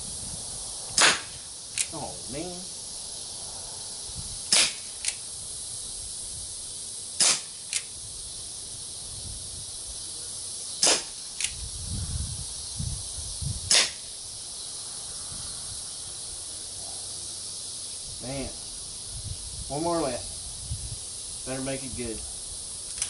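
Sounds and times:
air pistol shots: 0:00.9 - 0:02.0, 0:04.5 - 0:05.2, 0:07.2 - 0:07.9, 0:10.8 - 0:11.6, 0:13.7 - 0:14.1.

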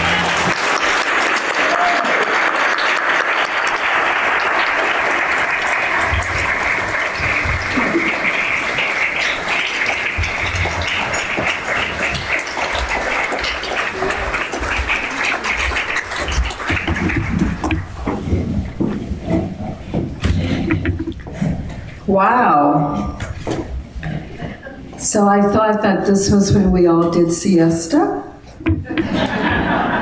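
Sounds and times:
audience applauding: 0:00.0 - 0:18.8.

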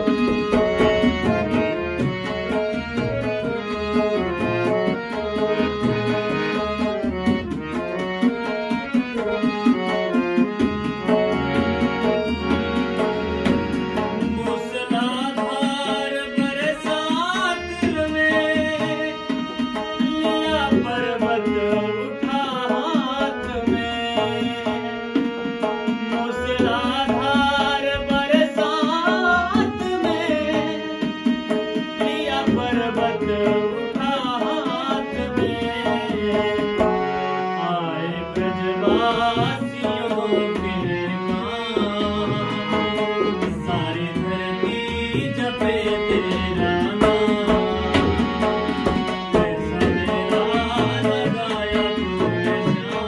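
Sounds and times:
harmonium: 0:00.0 - 0:53.0
tabla rhythm: 0:00.0 - 0:53.0
man singing: 0:11.0 - 0:53.0.

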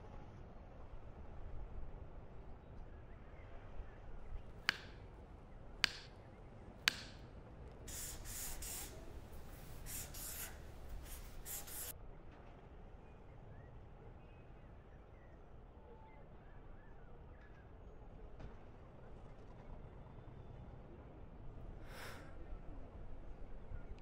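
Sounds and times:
sharp clicks: 0:04.7 - 0:05.1, 0:05.8 - 0:06.2, 0:06.9 - 0:07.2
pen scratching on card: 0:07.9 - 0:11.9.

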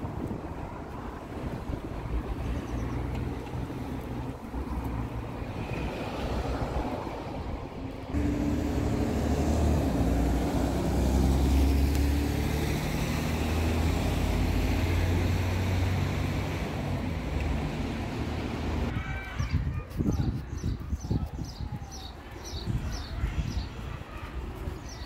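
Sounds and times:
cars passing: 0:00.0 - 0:19.0
bus engine humming: 0:06.7 - 0:18.9.

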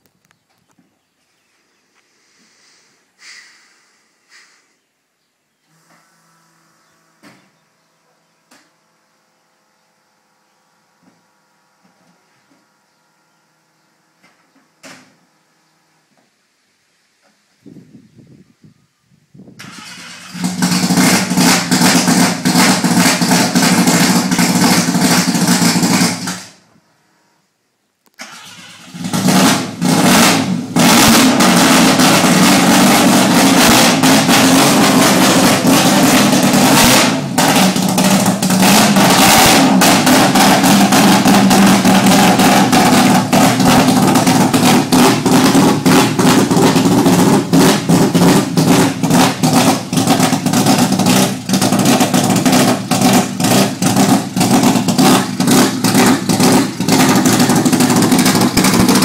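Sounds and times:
rotary engine starting and running: 0:19.6 - 0:26.6, 0:28.2 - 0:59.0.

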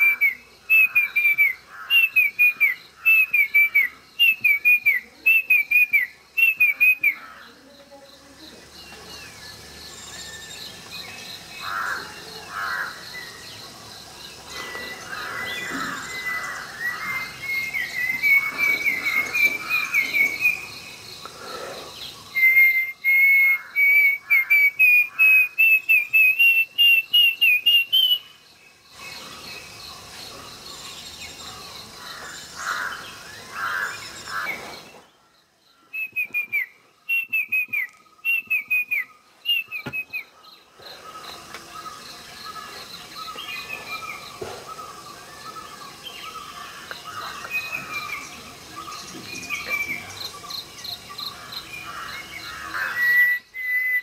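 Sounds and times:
cuckoo song: 0:00.0 - 0:07.2, 0:14.5 - 0:20.8, 0:22.2 - 0:28.4, 0:35.9 - 0:40.4, 0:52.5 - 0:54.0
crickets chirring: 0:00.0 - 0:54.0.

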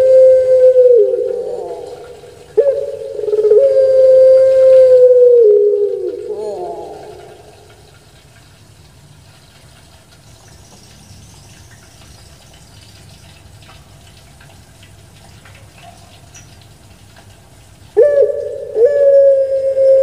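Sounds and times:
dove cooing: 0:00.0 - 0:07.8, 0:18.0 - 0:20.0
light ticks: 0:07.0 - 0:17.7.

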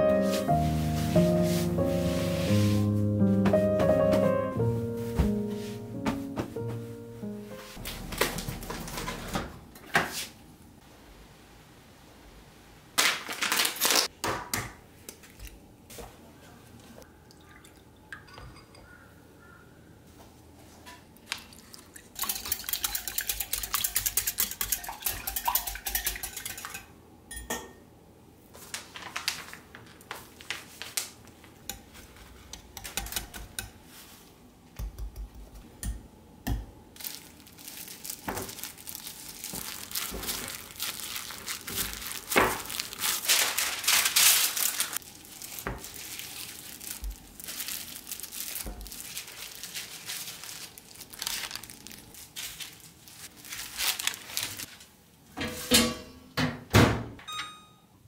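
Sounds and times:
plastic glove crinkling: 0:13.0 - 0:14.1, 0:28.5 - 0:31.6, 0:37.0 - 0:54.9
whisk beating in ceramic bowl: 0:22.2 - 0:26.9.

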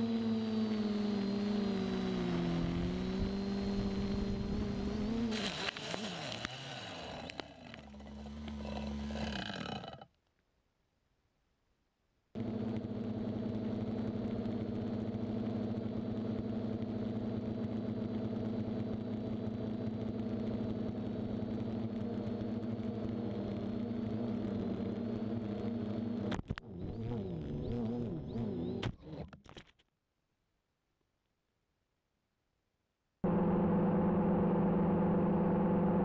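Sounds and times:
model aircraft motor buzzing: 0:00.0 - 0:10.0, 0:12.4 - 0:29.3.

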